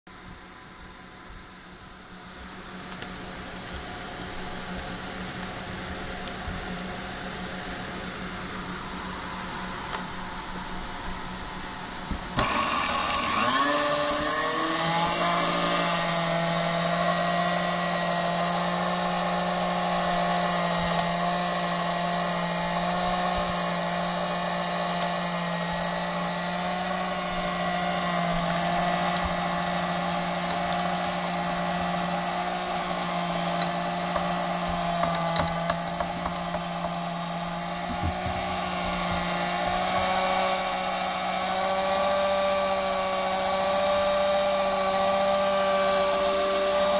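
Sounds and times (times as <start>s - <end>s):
mixer motor whine: 2.9s - 46.9s.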